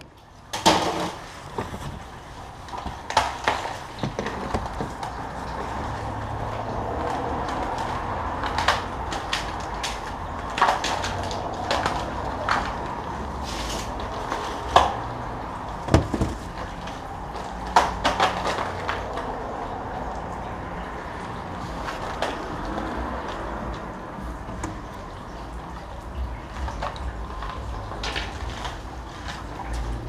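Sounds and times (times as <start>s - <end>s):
bicycle knocks and clicks: 0.0s - 1.2s
bicycle clattering on concrete: 0.0s - 30.0s.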